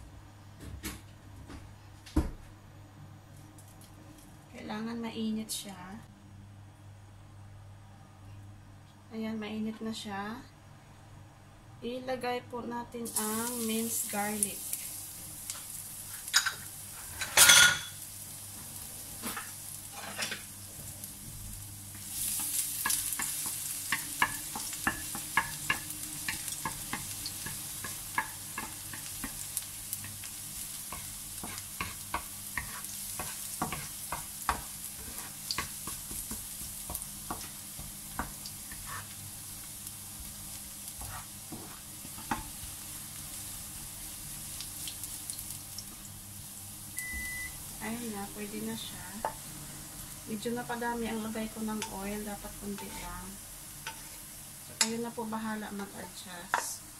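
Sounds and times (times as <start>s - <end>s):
garlic sizzling in hot oil: 13.0s - 56.9s
wooden spatula scraping pan: 31.4s - 36.7s, 38.7s - 39.2s, 41.0s - 42.5s, 52.6s - 54.3s.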